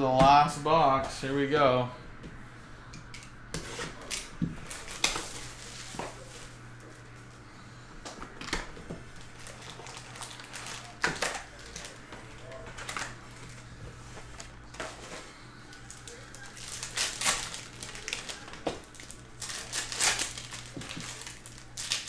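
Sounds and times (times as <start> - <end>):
low steady hum: 0.0 - 22.0
foil packs crinkling: 4.0 - 7.2, 8.2 - 22.0.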